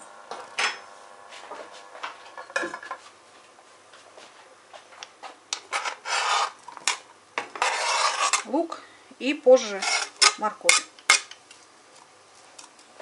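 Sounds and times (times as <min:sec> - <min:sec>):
knife scraping cutting board: 0:05.6 - 0:08.5, 0:09.6 - 0:11.4.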